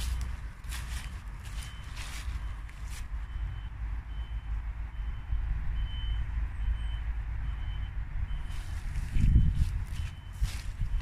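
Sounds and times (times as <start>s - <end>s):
steady low rumble: 0.0s - 4.2s, 7.5s - 11.0s
reversing alarm beeping: 0.0s - 11.0s.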